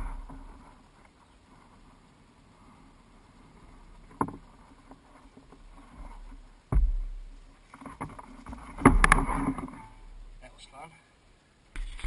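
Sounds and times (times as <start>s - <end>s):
knocks on canoe hull: 6.7s - 7.2s
heavy thump with low rumble: 6.7s - 7.3s.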